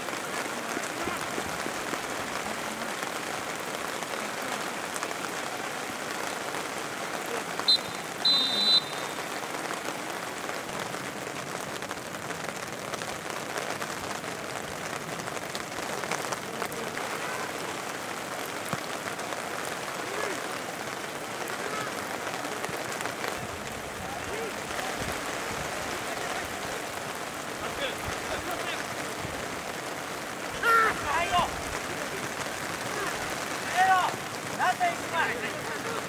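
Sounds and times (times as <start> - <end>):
rain falling: 0.0 - 36.0
referee's whistle: 7.6 - 9.3.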